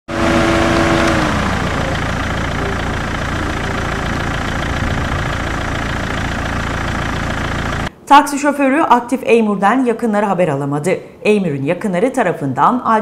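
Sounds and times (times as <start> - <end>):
engine idling: 0.1 - 7.9
short pitched tone: 1.5 - 6.6.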